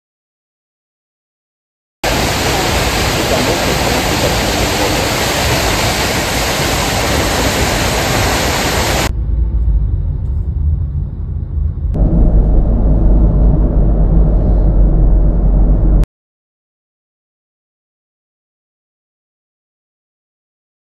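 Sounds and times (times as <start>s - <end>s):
waterfall roaring: 2.0s - 9.1s
car cabin road rumble: 2.0s - 16.1s.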